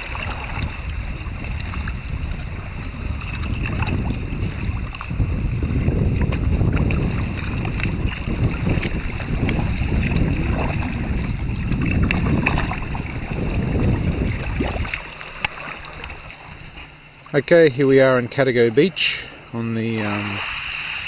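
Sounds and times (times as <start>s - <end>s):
paddle strokes splashing water: 0.0s - 21.0s
wind rumbling on microphone: 0.0s - 21.0s.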